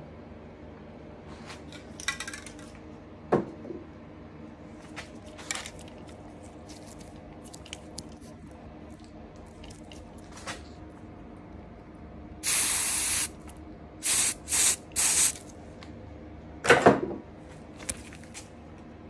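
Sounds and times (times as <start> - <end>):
steady low hum: 2.6 - 16.6.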